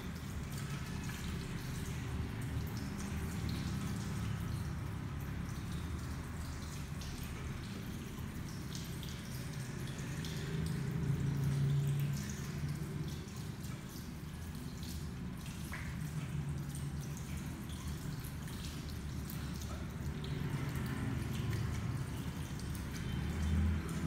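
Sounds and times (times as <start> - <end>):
water splashing in a washbasin: 0.0 - 24.0.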